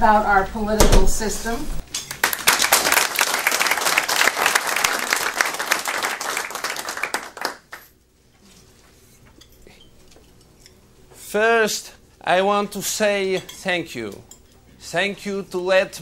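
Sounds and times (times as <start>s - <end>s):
audience applauding: 2.1s - 7.9s.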